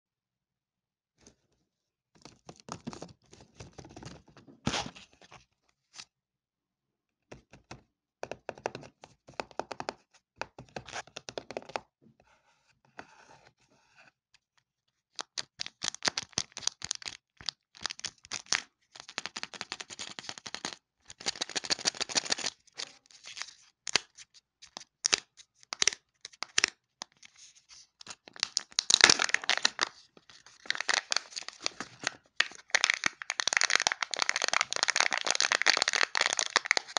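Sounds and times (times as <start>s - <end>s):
foil wrapper crinkling and tearing: 28.3s - 36.9s.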